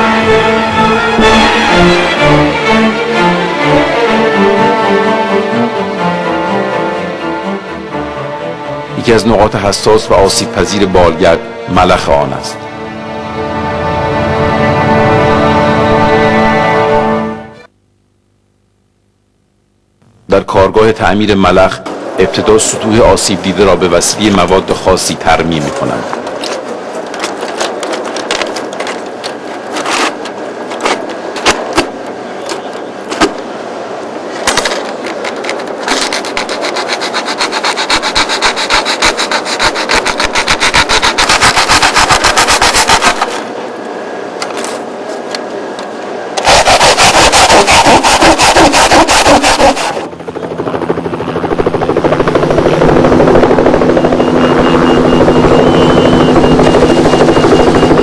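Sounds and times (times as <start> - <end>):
machine drone with high whine: 0.0 - 58.0
rasping: 35.9 - 43.3.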